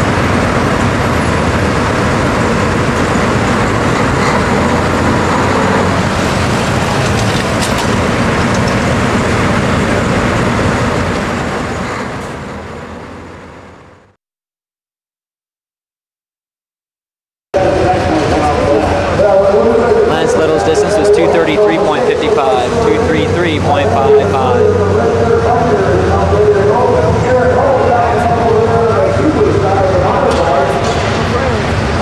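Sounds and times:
diesel engine running loud: 0.0 - 14.2, 17.6 - 32.0
arena crowd din: 17.6 - 31.8.

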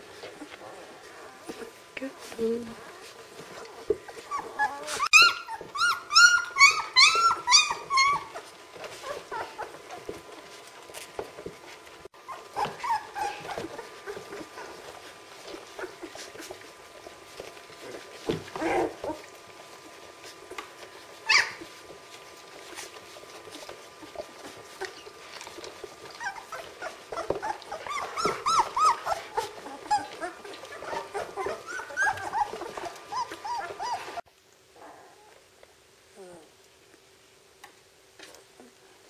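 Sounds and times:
puppies squealing and whimpering: 3.0 - 10.2, 12.2 - 16.8, 17.4 - 20.4, 21.0 - 34.2.

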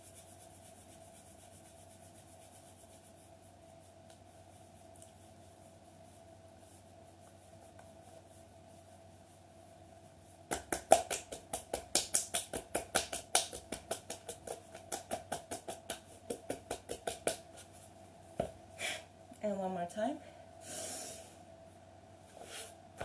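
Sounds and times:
hands rubbing skin: 0.0 - 18.4
hands tapping ankles: 10.5 - 17.8.

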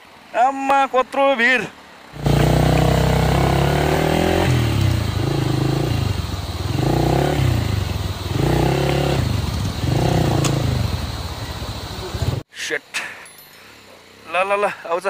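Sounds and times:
motorcycle engine revving: 2.2 - 12.4.

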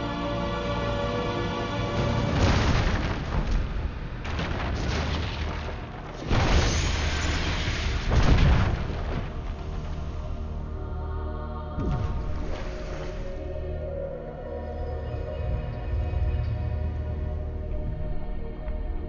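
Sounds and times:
orchestral film score: 0.0 - 19.0
heavy explosions: 2.0 - 10.6.

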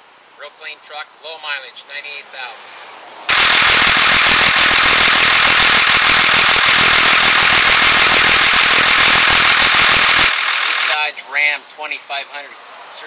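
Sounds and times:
diesel engine idling: 3.3 - 11.0.

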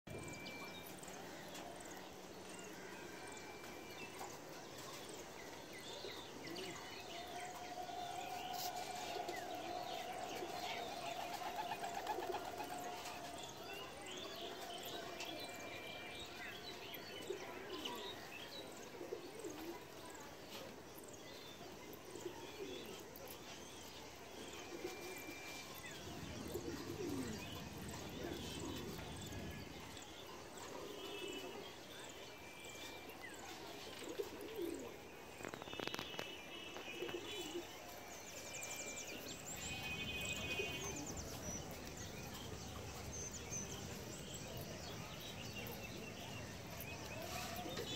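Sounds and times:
small birds chirping: 0.1 - 47.9
pigeons cooing: 8.7 - 13.4, 26.2 - 29.6, 33.8 - 35.0.

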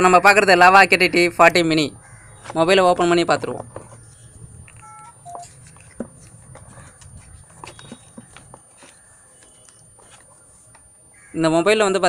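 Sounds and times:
handling clicks taps and rustling: 2.4 - 10.9
faint short phone beeps: 4.8 - 5.5.

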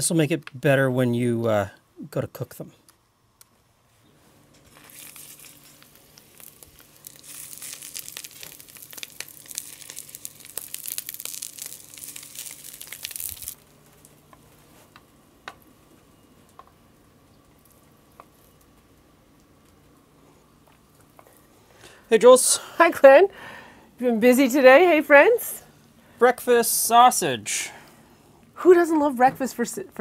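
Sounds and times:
sausages sizzling in oil: 4.7 - 14.8.

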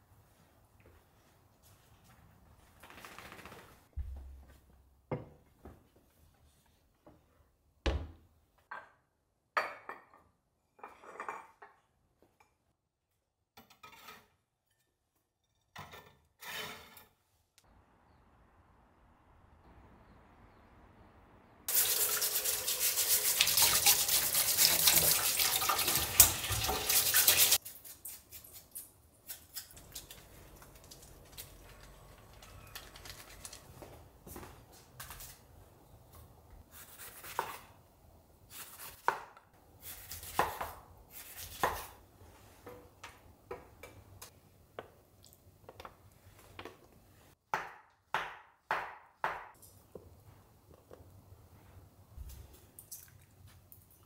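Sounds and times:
kitchen tap running: 21.7 - 27.6.

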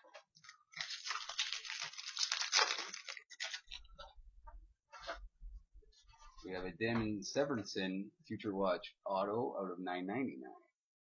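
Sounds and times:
foil wrapper crinkling: 0.4 - 4.0.

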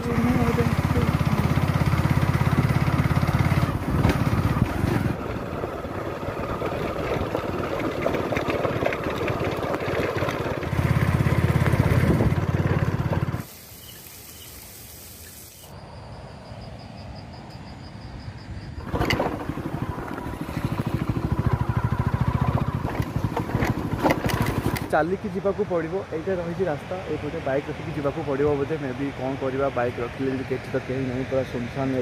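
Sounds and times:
motorcycle engine running: 0.0 - 13.5, 18.8 - 25.2
quiet outdoor background: 0.0 - 32.0
wind rumbling on microphone: 3.5 - 13.4.

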